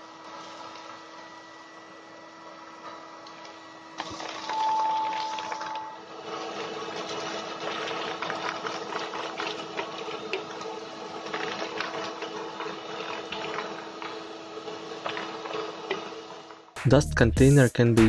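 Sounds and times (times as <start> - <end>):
vacuum cleaner running: 0.0 - 16.8.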